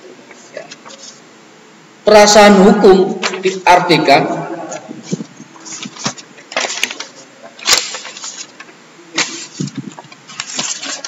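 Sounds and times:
paper rustling: 0.3s - 1.2s, 4.7s - 11.0s.

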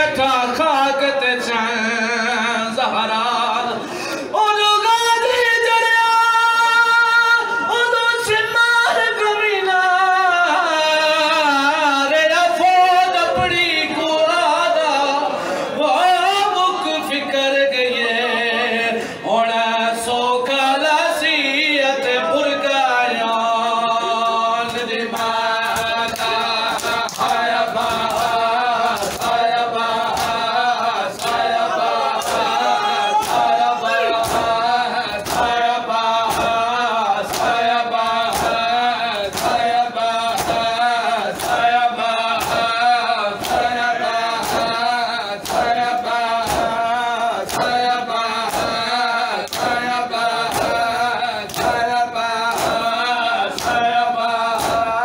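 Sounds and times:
men chanting in chorus: 0.0s - 55.0s
reciter leading chant: 0.0s - 55.0s
hands slapping chests: 25.1s - 30.4s, 33.2s - 33.6s, 35.2s - 35.6s, 37.2s - 37.6s, 38.2s - 39.7s, 40.3s - 40.7s, 41.3s - 41.7s, 42.4s - 42.7s, 43.4s - 43.8s, 45.4s - 46.8s, 47.4s - 54.0s, 54.6s - 54.9s.

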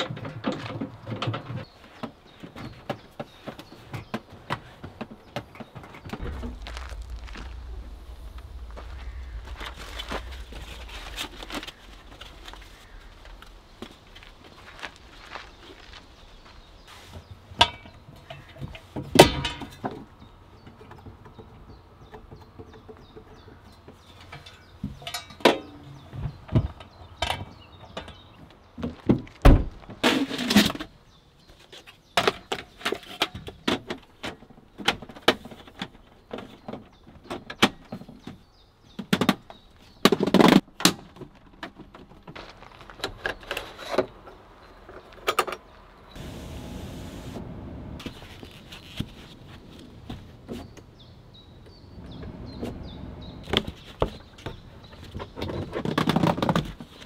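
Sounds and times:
loud bangs: 6.2s - 13.4s.

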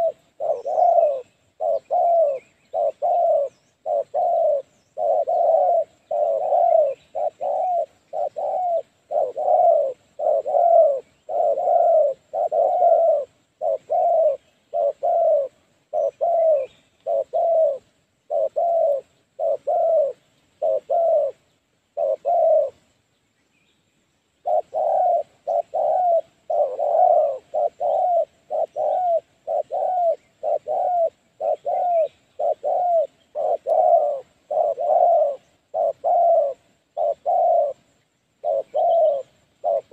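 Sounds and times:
doves cooing: 0.0s - 22.9s, 24.4s - 39.9s.

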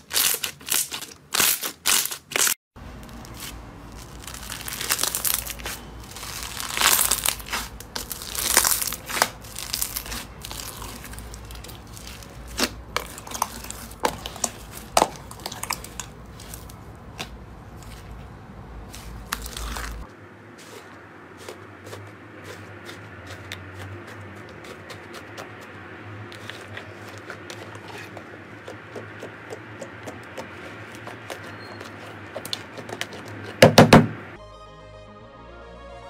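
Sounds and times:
slime crackling and popping: 3.2s - 17.3s.

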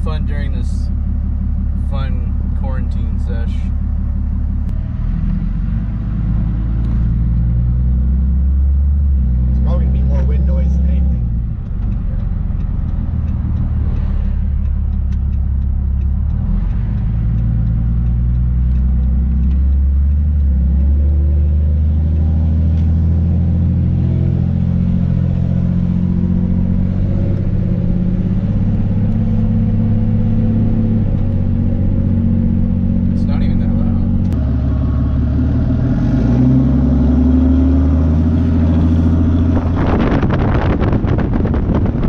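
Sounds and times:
diesel engine drone: 0.0s - 42.0s.

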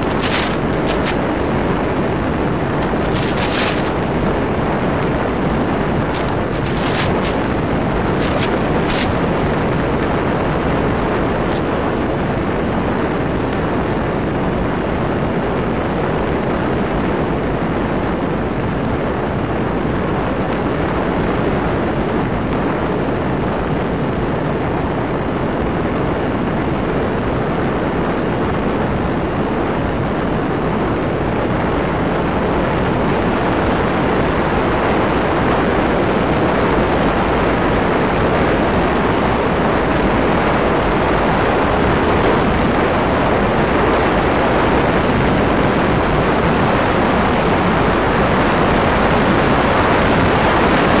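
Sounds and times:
short crackles: 0.0s - 10.3s, 11.2s - 13.7s
model plane in flight: 0.0s - 51.0s.

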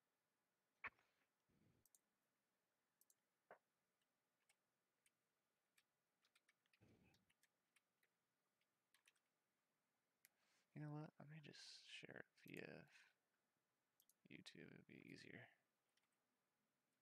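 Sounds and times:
typing on keyboard: 4.4s - 8.1s, 8.9s - 9.2s.

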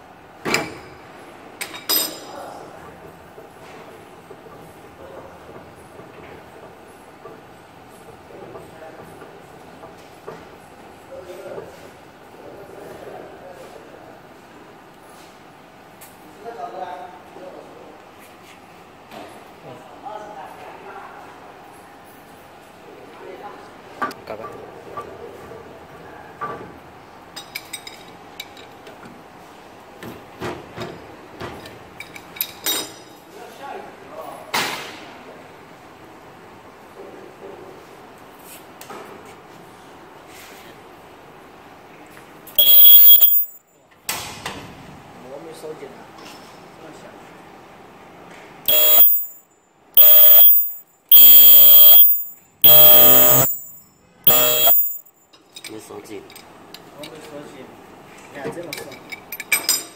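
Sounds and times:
ultrasonic welder high-pitched screech: 42.6s - 43.5s, 48.7s - 49.3s, 50.0s - 53.7s, 54.3s - 55.0s.

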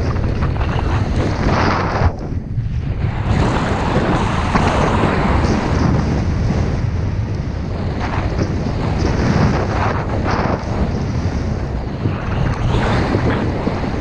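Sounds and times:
snowboard sliding through snow: 0.0s - 14.0s
wind on microphone: 0.0s - 14.0s.

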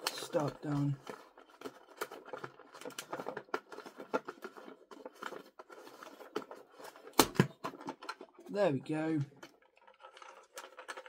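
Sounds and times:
plastic and cardboard packaging handled: 0.0s - 11.0s.

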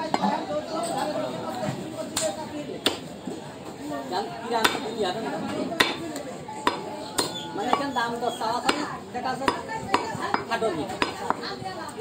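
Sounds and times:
cleaver chopping meat on wood: 2.8s - 3.1s, 4.6s - 5.0s, 5.7s - 11.6s.

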